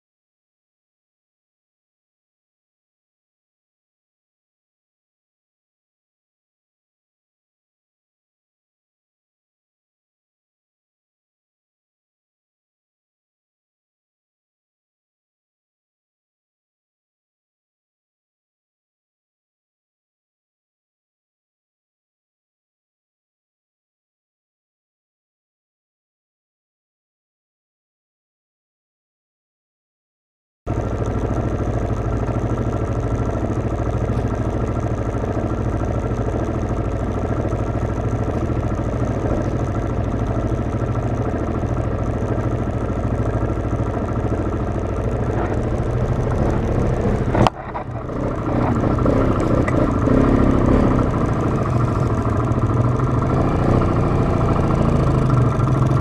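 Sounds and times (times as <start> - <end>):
atv engine idling: 30.7 - 56.0.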